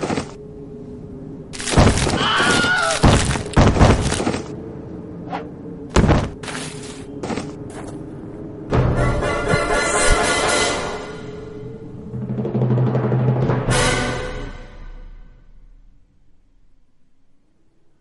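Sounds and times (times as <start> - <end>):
steady low hum: 0.0 - 2.2, 3.0 - 12.7
cartoon thuds and crashes: 1.7 - 4.4, 5.9 - 6.4.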